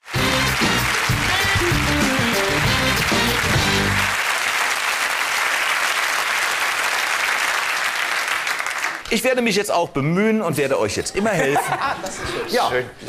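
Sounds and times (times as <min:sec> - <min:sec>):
studio audience applauding: 0:00.0 - 0:09.4.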